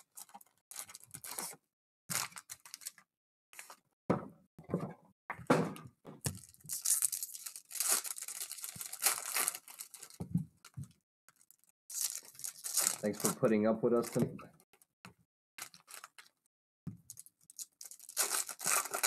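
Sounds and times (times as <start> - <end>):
foil packs rustling: 6.4 - 10.2, 11.9 - 14.2, 17.8 - 19.0
foil wrappers tearing: 6.4 - 10.2, 11.4 - 14.2, 17.2 - 19.0.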